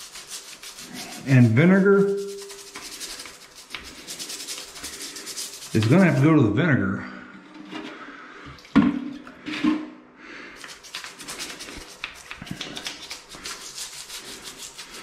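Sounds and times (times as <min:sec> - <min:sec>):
brush scrubbing tile grout: 0:00.0 - 0:06.6, 0:10.5 - 0:15.0.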